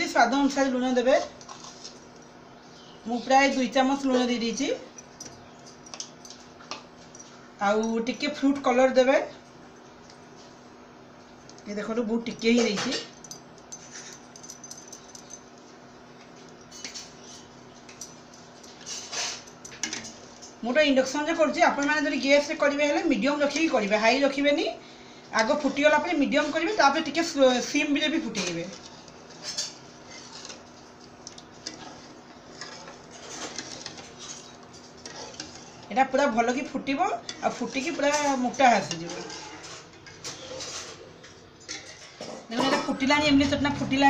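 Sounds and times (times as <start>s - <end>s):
induction cooktop humming: 0.0s - 44.0s
metal spoon scraping a pan: 18.8s - 20.0s, 28.2s - 30.6s, 31.6s - 36.3s, 37.2s - 41.1s.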